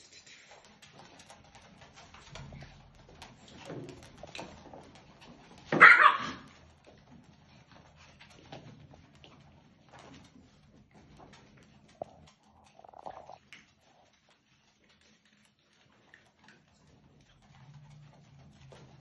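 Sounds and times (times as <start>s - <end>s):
puppies scuffling: 0.0s - 19.0s
puppies yapping: 5.6s - 6.7s.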